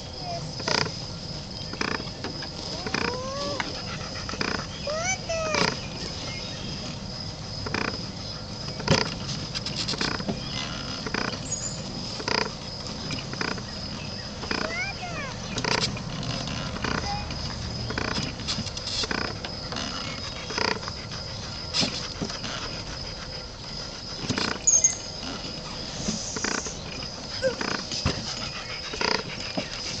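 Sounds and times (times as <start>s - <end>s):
cow rubbing and knocking: 6.8s - 23.3s, 24.0s - 30.0s.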